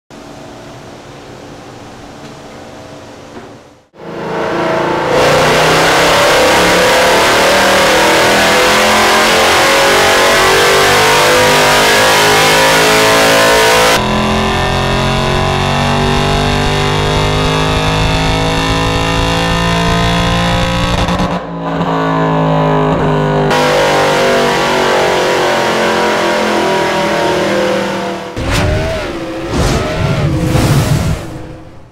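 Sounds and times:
car engine accelerating hard: 3.9 - 31.9.

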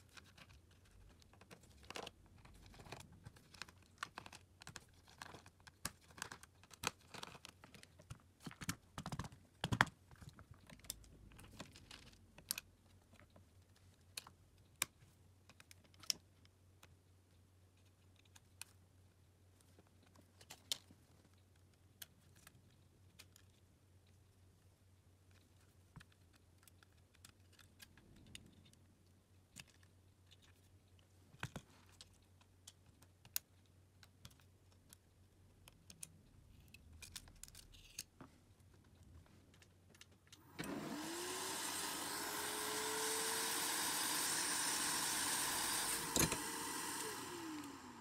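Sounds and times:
electric blower motor running: 40.4 - 48.0
small tools clicking and tapping: 44.7 - 47.8.

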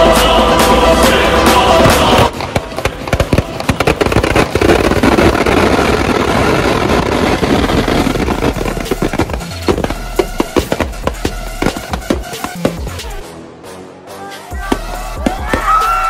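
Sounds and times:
firecrackers crackling: 1.0 - 13.2.

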